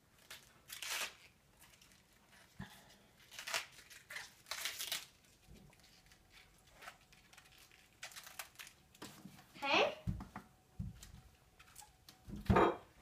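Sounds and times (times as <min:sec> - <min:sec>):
cabbage leaf crinkling: 0:00.0 - 0:09.4.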